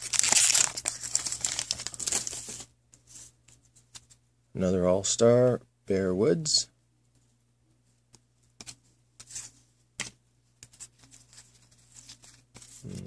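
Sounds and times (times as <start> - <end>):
trading cards flipped by hand: 8.1 - 12.8.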